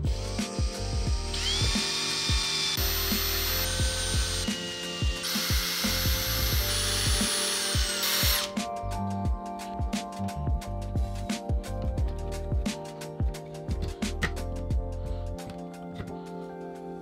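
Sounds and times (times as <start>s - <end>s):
drill motor whine: 0.0s - 8.6s
background music with beat: 0.0s - 17.0s
drill drilling into metal: 0.1s - 8.6s.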